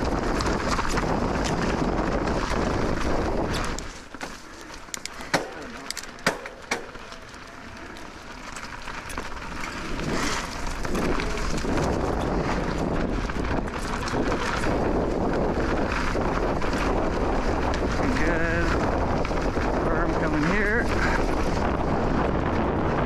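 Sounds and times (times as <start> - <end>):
wind noise on microphone: 0.0 - 7.0, 8.7 - 23.0
bike knocks and clatters: 0.0 - 7.3
tyres rolling on dirt: 0.0 - 23.0.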